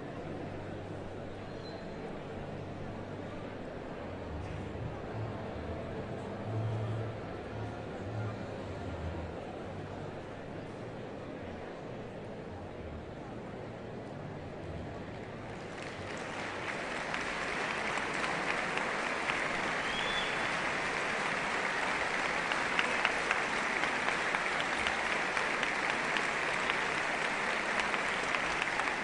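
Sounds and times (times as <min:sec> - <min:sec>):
audience applauding: 0:15.5 - 0:29.0.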